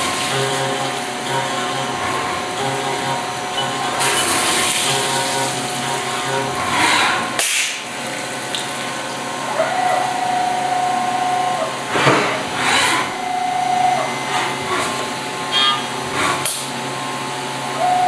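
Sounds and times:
end mill cutting tone: 0:00.0 - 0:07.2.

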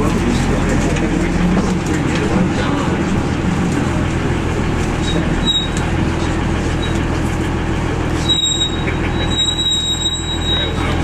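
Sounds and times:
bus diesel engine rumbling: 0:00.0 - 0:11.0
thin high squeal: 0:05.0 - 0:05.8, 0:08.2 - 0:11.0.

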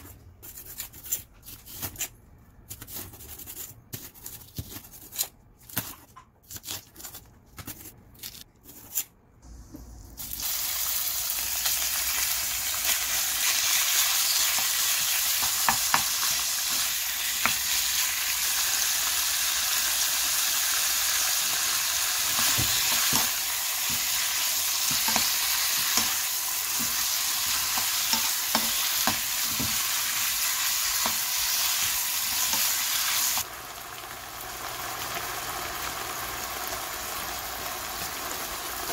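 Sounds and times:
meat sizzling in a frying pan: 0:10.3 - 0:38.9
knife chopping on steel counter: 0:24.8 - 0:29.8.

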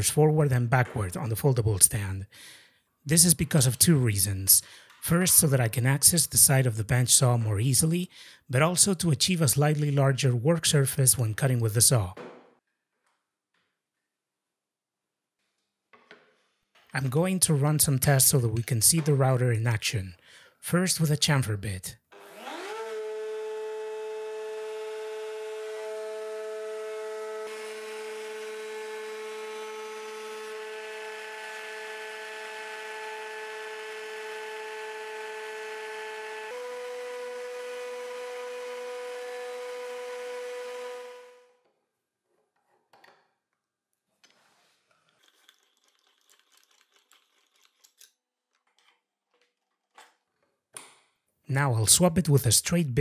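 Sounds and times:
router whining at speed: 0:22.1 - 0:41.5
faint clicks of handling tools: 0:44.2 - 0:51.1.

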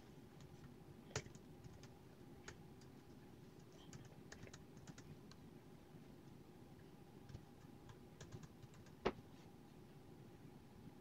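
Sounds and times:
laptop keyboard typing: 0:00.4 - 0:02.9, 0:03.6 - 0:05.2, 0:07.3 - 0:09.1.

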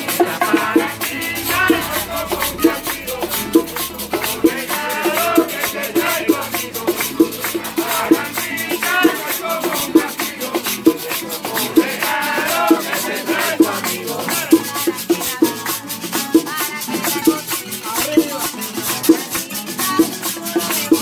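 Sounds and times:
crowd clapping: 0:00.0 - 0:20.0
strummed strings and percussion: 0:00.0 - 0:21.0
woman and crowd singing: 0:00.0 - 0:21.0.

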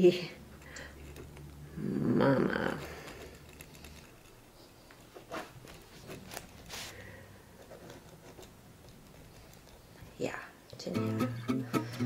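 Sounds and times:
pen and notebook rustling: 0:02.6 - 0:10.2.

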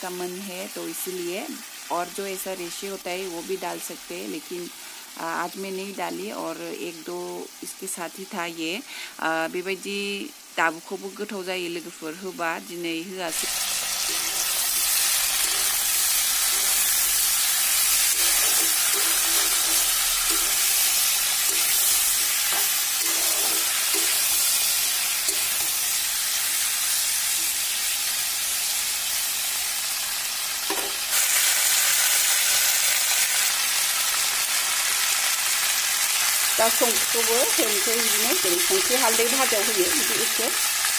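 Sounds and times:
fruit sizzling in oil: 0:00.0 - 0:40.9
spatula stirring: 0:13.4 - 0:27.8.

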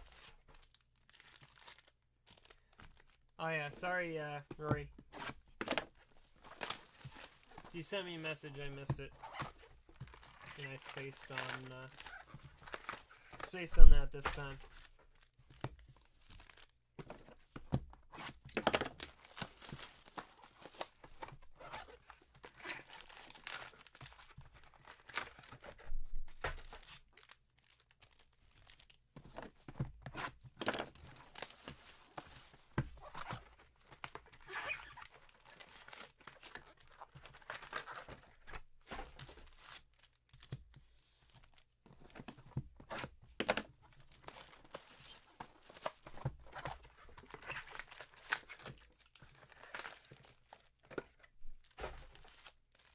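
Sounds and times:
hands handling cards: 0:04.5 - 0:27.4
foil wrappers tearing and crinkling: 0:06.4 - 0:13.7, 0:21.7 - 0:25.7, 0:47.0 - 0:50.6.

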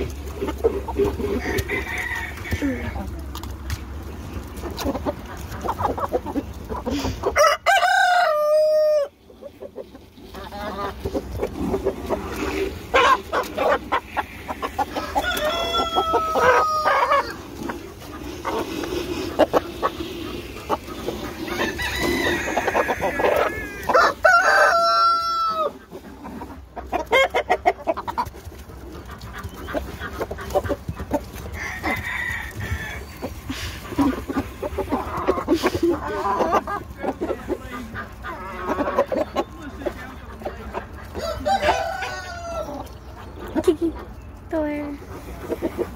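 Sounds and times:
chickens clucking: 0:00.0 - 0:45.9
rooster crowing: 0:01.4 - 0:03.0, 0:07.4 - 0:09.1, 0:14.9 - 0:17.4, 0:21.5 - 0:25.7, 0:31.6 - 0:33.1, 0:41.2 - 0:42.8.

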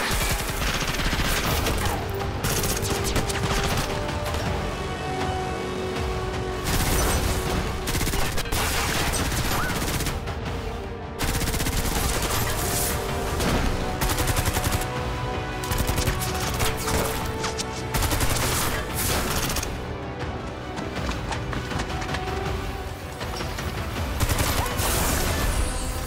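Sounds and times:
rapid gunfire: 0:00.0 - 0:04.2, 0:06.6 - 0:10.3, 0:11.2 - 0:19.8, 0:24.1 - 0:25.3.

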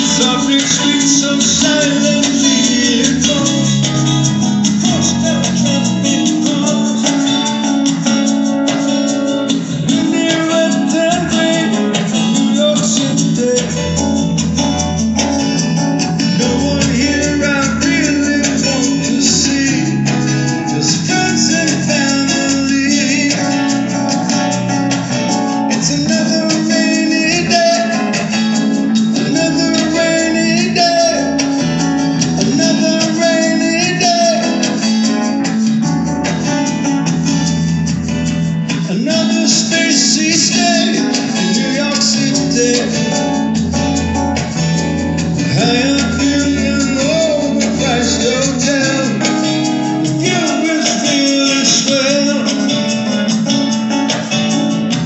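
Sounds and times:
person singing: 0:00.0 - 0:36.8, 0:38.7 - 0:44.6, 0:45.2 - 0:55.0
acoustic guitar strumming: 0:00.0 - 0:55.0
keyboard: 0:00.0 - 0:55.0
wavering lead melody: 0:40.2 - 0:55.0.

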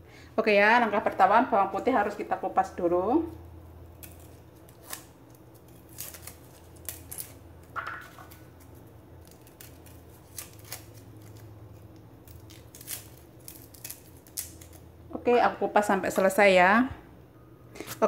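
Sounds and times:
steady low hum: 0:00.0 - 0:18.0
cleaver peeling garlic skins: 0:03.6 - 0:15.4.

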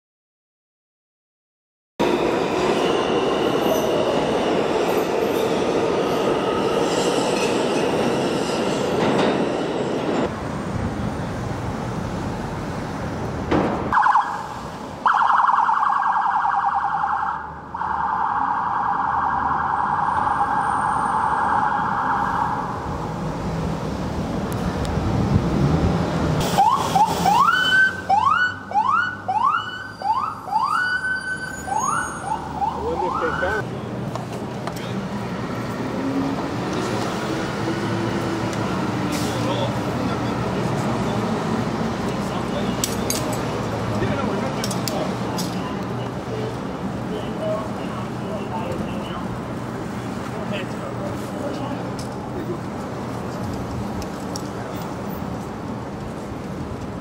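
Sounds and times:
subway train running: 0:02.0 - 0:15.0, 0:22.6 - 0:27.3, 0:33.6 - 0:57.0
police siren warbling: 0:13.9 - 0:22.9, 0:26.4 - 0:33.6
siren rising in quick sweeps: 0:13.9 - 0:22.9, 0:26.4 - 0:33.6.

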